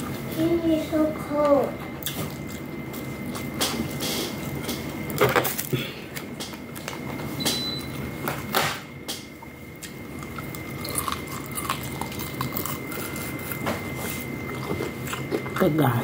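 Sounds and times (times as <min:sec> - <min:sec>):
person chewing food: 0:02.0 - 0:07.1, 0:09.4 - 0:16.0.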